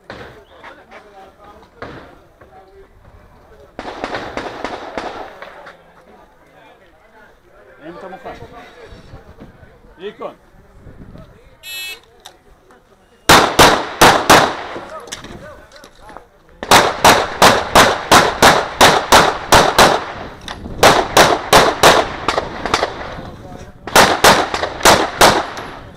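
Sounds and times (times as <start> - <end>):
pistol shots with echo: 3.8 - 5.6, 13.3 - 14.9, 16.6 - 23.2, 23.8 - 25.8.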